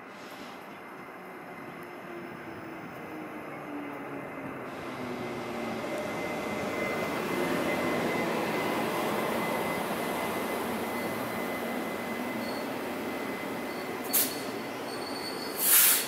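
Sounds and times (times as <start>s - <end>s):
electric locomotive passing: 0.0s - 16.0s.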